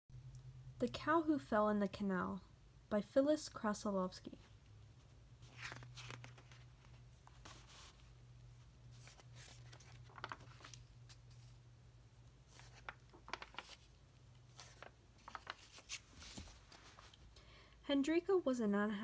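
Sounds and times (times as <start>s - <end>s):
low steady hum: 0.1s - 19.0s
paper pages turning: 5.4s - 11.6s, 12.4s - 17.3s.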